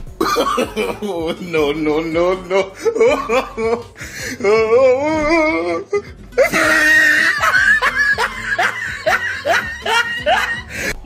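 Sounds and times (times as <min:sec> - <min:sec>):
bursts of laughter: 0:06.4 - 0:10.8.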